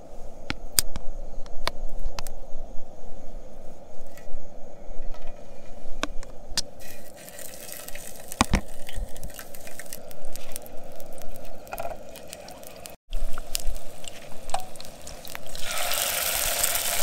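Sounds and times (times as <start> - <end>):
eggs frying in oil: 6.8 - 17.0.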